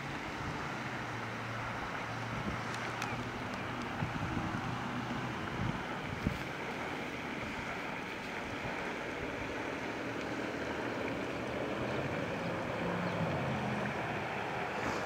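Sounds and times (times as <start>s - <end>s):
water rippling: 0.0s - 15.0s
wind buffeting microphone: 2.3s - 9.6s.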